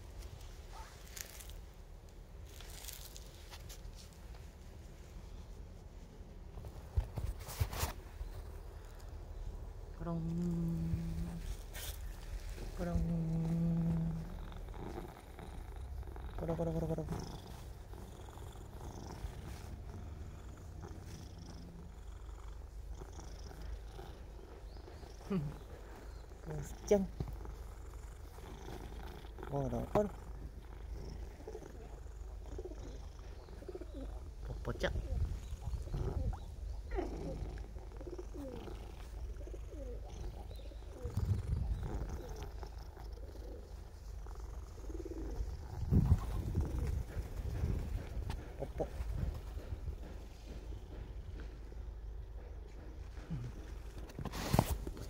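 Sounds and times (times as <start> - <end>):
cat purring: 7.9 - 55.0
pigeons cooing: 30.7 - 49.8.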